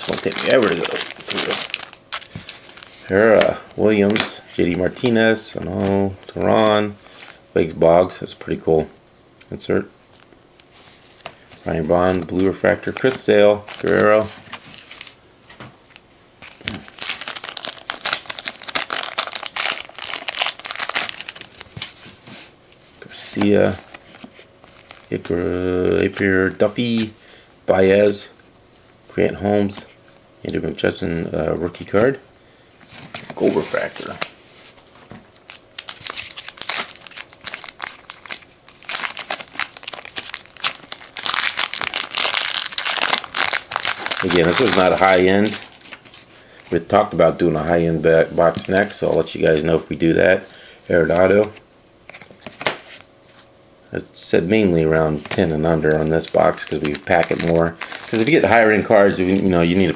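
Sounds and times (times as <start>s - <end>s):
packaging crinkling and rustling: 0.0s - 7.4s, 12.0s - 15.2s, 15.9s - 22.3s, 23.4s - 25.3s, 35.2s - 47.0s, 55.2s - 59.9s.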